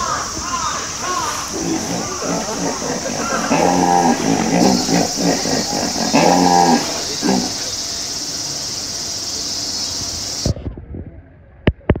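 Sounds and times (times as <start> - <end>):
steady high hiss: 0.0 - 10.6
hippopotamus honking: 1.2 - 7.7.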